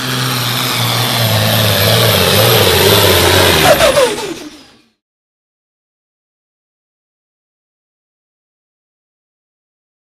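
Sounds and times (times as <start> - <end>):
tractor diesel engine running hard: 0.0 - 5.0.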